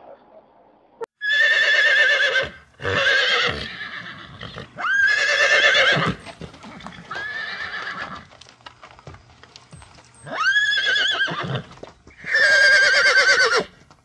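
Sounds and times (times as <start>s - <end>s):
horse whinnying: 1.2s - 8.3s, 10.2s - 13.8s.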